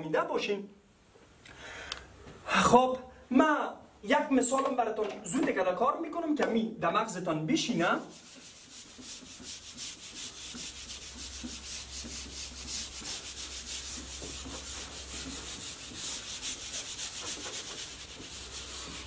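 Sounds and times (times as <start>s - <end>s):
eraser wiping whiteboard: 8.0s - 19.0s.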